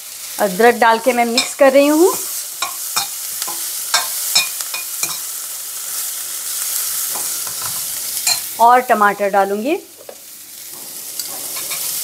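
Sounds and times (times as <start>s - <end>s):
onions sizzling: 0.0s - 12.0s
metal spatula clinking on pan: 2.6s - 5.3s, 7.6s - 8.5s.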